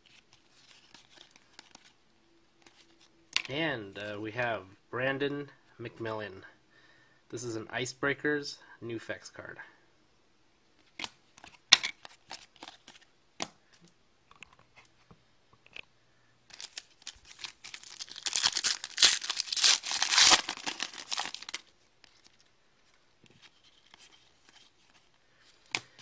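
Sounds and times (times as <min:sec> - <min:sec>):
wrapper tearing and crinkling: 0:16.5 - 0:22.4.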